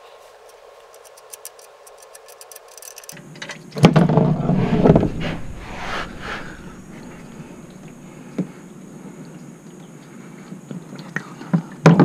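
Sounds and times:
loud clattering: 0:03.9 - 0:08.2.

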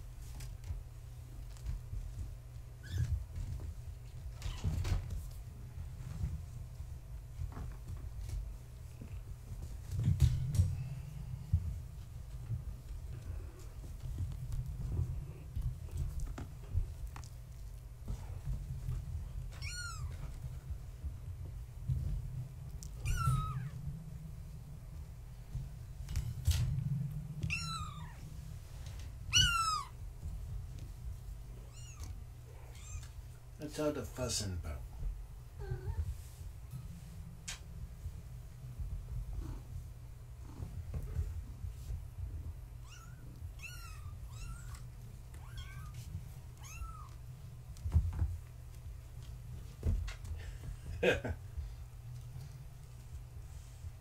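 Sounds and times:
steady low hum: 0:00.0 - 0:54.0
kitten meowing: 0:19.5 - 0:20.2, 0:23.0 - 0:23.8, 0:27.5 - 0:28.2, 0:29.3 - 0:30.0, 0:31.7 - 0:32.1, 0:42.8 - 0:46.0, 0:46.6 - 0:47.2
kittens mewing: 0:22.9 - 0:23.8, 0:29.3 - 0:30.0.

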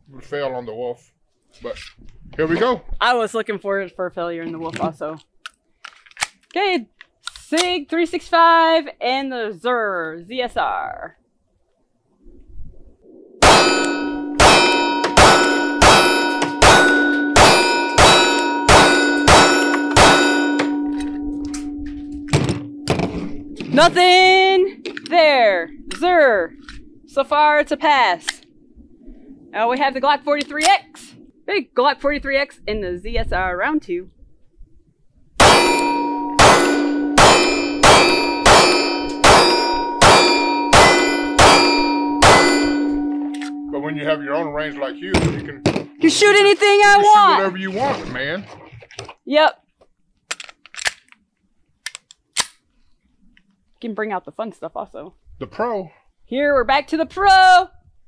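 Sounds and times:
steel target ringing: 0:13.4 - 0:24.0, 0:35.4 - 0:47.2.

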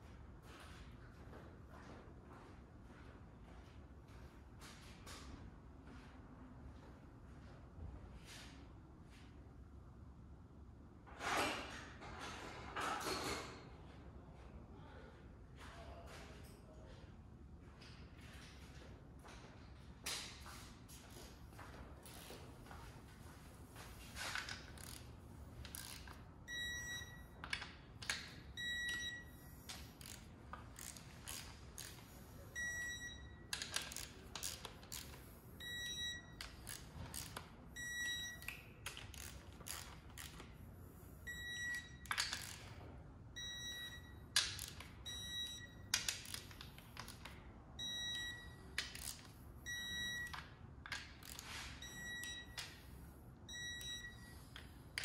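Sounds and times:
ratchet clicks: 0:24.3 - 0:26.2, 0:28.9 - 0:32.2, 0:33.5 - 0:35.3, 0:36.4 - 0:37.5, 0:38.3 - 0:40.5, 0:41.7 - 0:42.7, 0:45.9 - 0:47.4, 0:48.8 - 0:49.4, 0:50.2 - 0:52.8
short high beeps: 0:28.6 - 0:29.6, 0:35.6 - 0:36.4, 0:37.8 - 0:38.5, 0:47.8 - 0:48.6, 0:49.7 - 0:50.3, 0:51.8 - 0:52.6, 0:53.5 - 0:54.4.

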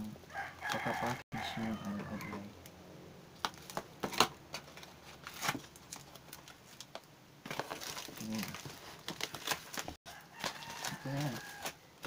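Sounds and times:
bubble wrap crackling: 0:04.5 - 0:12.0.

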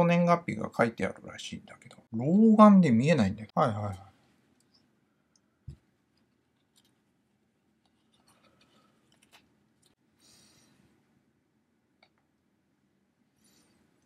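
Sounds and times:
faint paper rustle: 0:06.1 - 0:10.0.

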